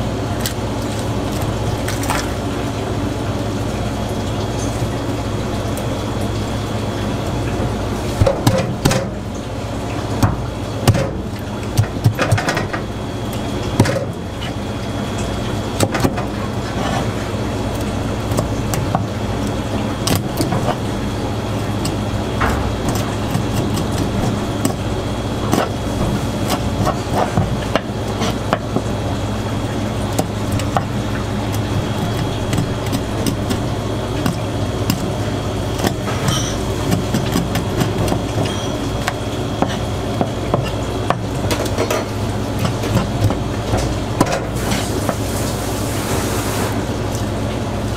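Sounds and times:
machine hum with high whine: 0.0 - 47.9.

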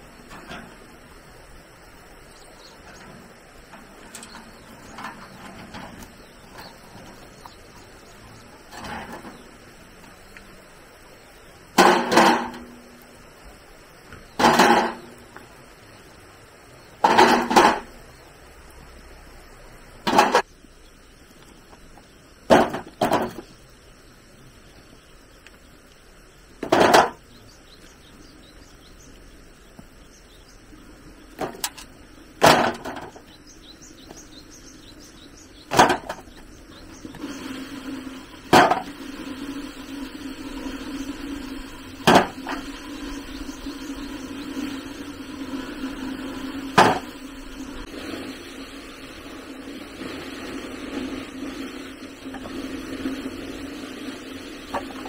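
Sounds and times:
steady low hum: 0.0 - 55.0
heavy knocks: 46.8 - 47.2.

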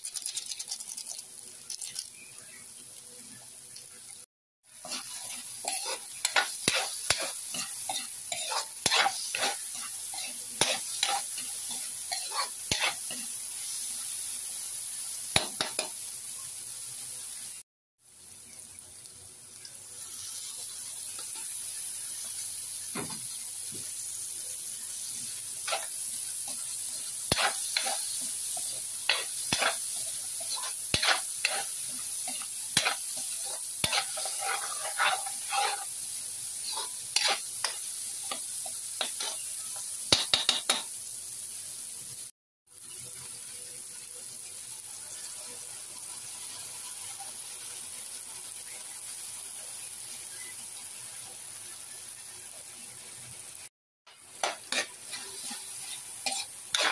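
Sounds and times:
vegetables sizzling in oil: 0.0 - 56.9
spatula scraping a wok: 4.7 - 14.0, 25.0 - 40.8, 54.2 - 56.9.

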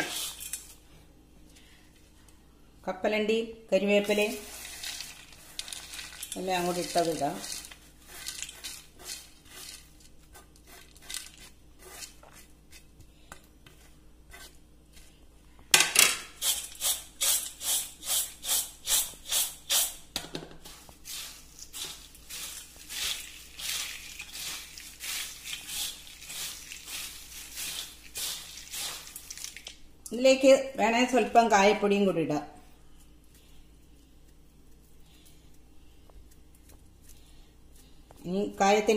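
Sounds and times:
hand mixing rustling: 3.9 - 15.6, 20.6 - 29.9, 32.9 - 38.0
snack mix rustling: 4.1 - 13.0, 20.8 - 29.8
snacks rattling in steel bowl: 4.3 - 12.2, 21.6 - 29.8.

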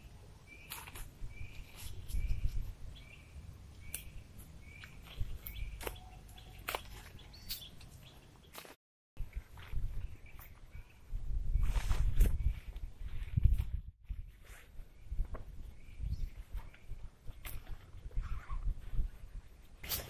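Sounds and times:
bird chirping: 0.0 - 8.7, 14.9 - 18.7
tarp and tent pole rustling: 11.6 - 14.8, 16.5 - 20.0.

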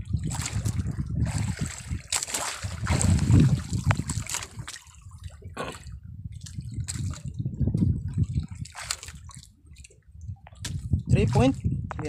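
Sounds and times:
water splashing against boat: 0.0 - 11.8
low rumble: 2.7 - 8.7.

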